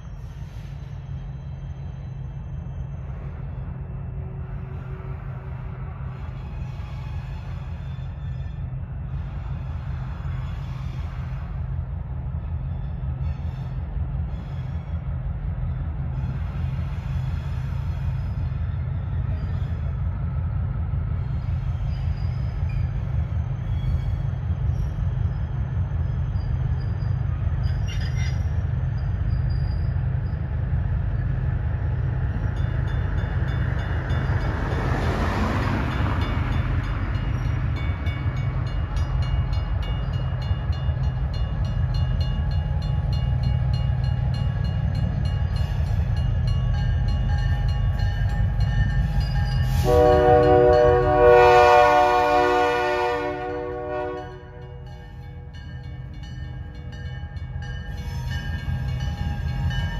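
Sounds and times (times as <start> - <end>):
locomotive air horn chord: 49.7 - 54.8.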